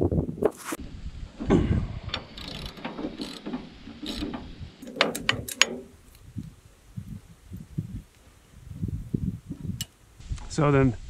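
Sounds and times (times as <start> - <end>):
ratchet wrench clicking: 2.2 - 5.8.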